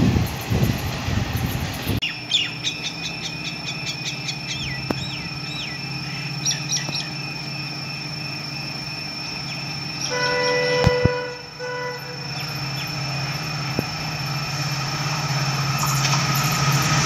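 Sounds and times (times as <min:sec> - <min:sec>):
low hum: 0:00.0 - 0:17.0
bird chirping: 0:02.0 - 0:07.7, 0:09.2 - 0:13.1
thin high whine: 0:02.8 - 0:17.0.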